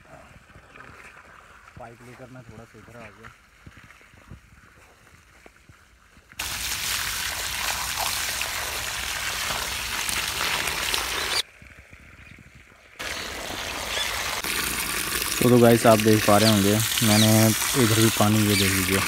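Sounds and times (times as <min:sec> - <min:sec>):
water gushing from a hose: 0:06.4 - 0:11.5, 0:13.0 - 0:19.0.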